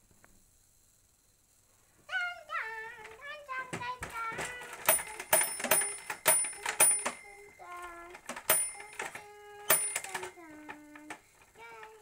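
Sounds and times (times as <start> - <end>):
plastic toy clacks and clicks: 3.0 - 12.0
high bell-like ring: 4.8 - 11.1.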